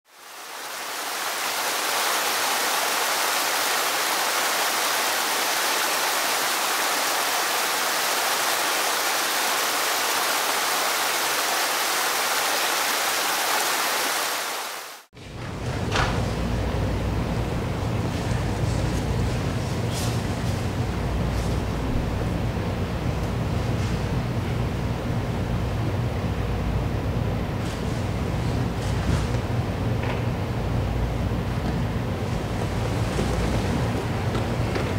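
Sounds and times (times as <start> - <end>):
stream rushing over rocks: 0.1 - 15.1.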